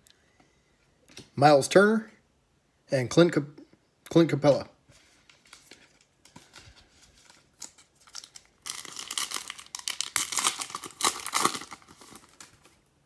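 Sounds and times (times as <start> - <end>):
wrapper crinkling and tearing: 5.4 - 12.9.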